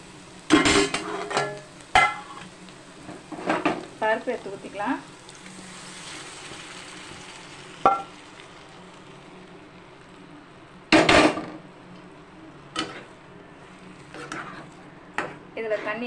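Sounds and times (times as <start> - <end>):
food sizzling in a pan: 0.0 - 16.0.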